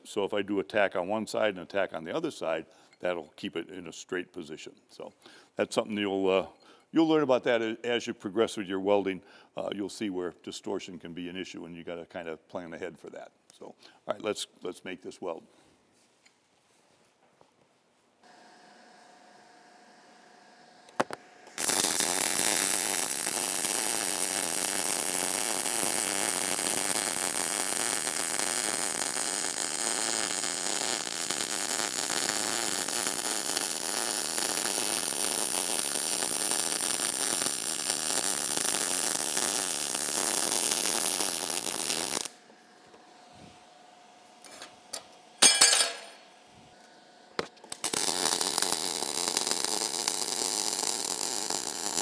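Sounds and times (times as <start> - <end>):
welding arc crackling sizzle: 18.3 - 42.5, 44.4 - 52.0.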